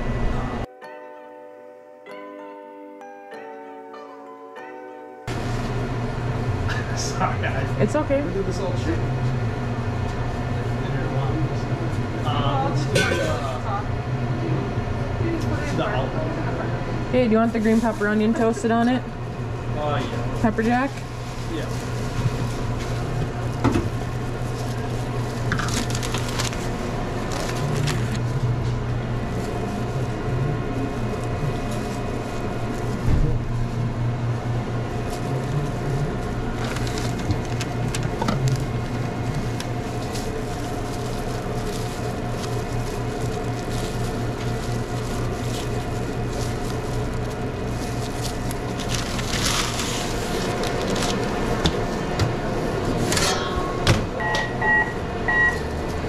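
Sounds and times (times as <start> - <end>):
kitchen equipment humming: 5.3 - 56.0
food wrappers rustling: 20.2 - 28.4, 29.0 - 33.8, 34.4 - 53.1.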